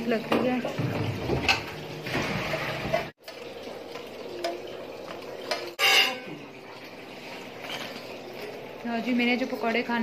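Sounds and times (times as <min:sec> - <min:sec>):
metal utensils clinking on pots: 0:02.8 - 0:06.4.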